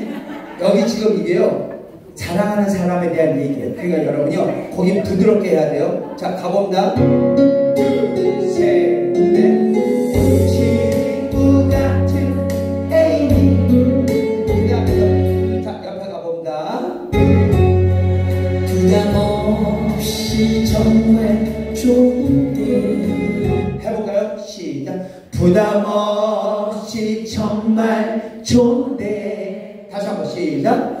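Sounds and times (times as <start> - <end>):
trot song with band backing: 6.9 - 15.7, 16.9 - 24.3
person singing: 7.0 - 15.6, 17.2 - 23.9.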